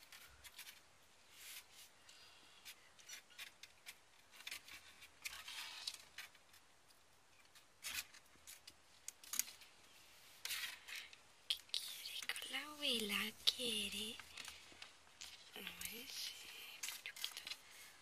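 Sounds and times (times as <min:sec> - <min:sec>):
kittens scratching and clicking: 0:00.0 - 0:01.7, 0:02.6 - 0:09.7, 0:14.0 - 0:18.0.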